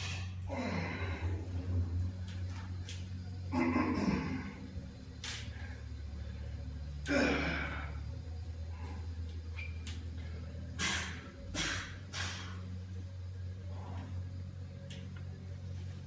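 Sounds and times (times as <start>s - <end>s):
steady low hum: 0.0s - 16.0s
man breathing forcefully: 10.7s - 12.7s.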